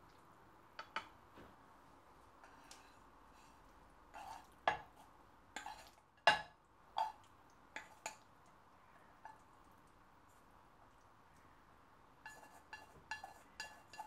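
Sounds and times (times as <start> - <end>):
chopsticks clacking on a saucepan: 0.8 - 1.1, 5.6 - 7.2, 7.8 - 8.3, 12.2 - 14.0
chopsticks scraping a pan: 2.4 - 6.4, 12.2 - 14.0.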